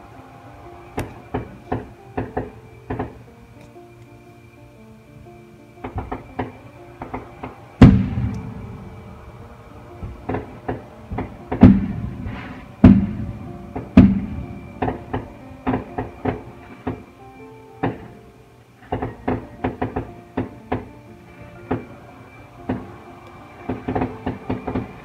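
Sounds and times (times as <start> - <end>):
booming firework blasts: 0.0 - 3.3, 5.8 - 17.1, 18.8 - 25.0
quiet music: 0.0 - 25.0
fireworks bangs and pops: 5.8 - 8.5, 10.0 - 17.0, 23.7 - 25.0.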